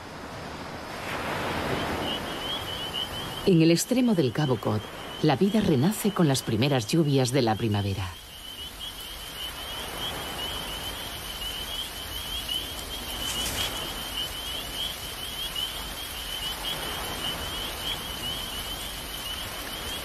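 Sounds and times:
steady soft hiss: 8.5s - 15.9s.

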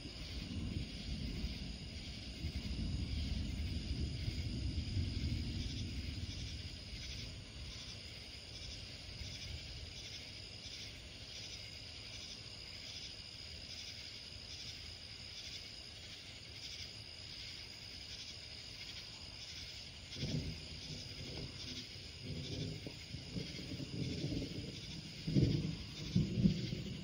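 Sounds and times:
distant thunder rumble: 0.0s - 12.8s, 18.5s - 27.0s
night insects chorus: 0.0s - 27.0s.

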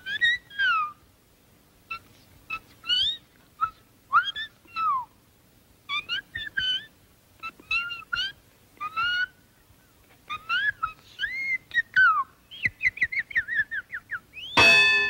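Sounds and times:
high-pitched cartoon voice singing: 1.9s - 5.1s, 5.9s - 9.4s, 10.3s - 12.3s.

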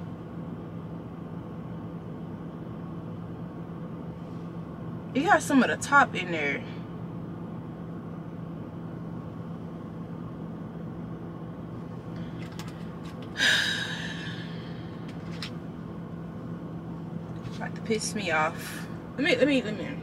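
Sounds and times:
low hum inside truck cab: 0.0s - 20.0s
person gasping: 13.4s - 14.8s.

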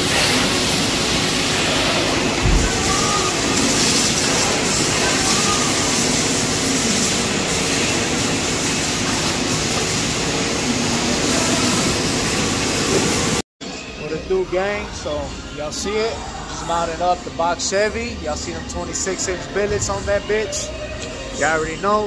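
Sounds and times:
pressure washer spraying: 0.0s - 13.4s.

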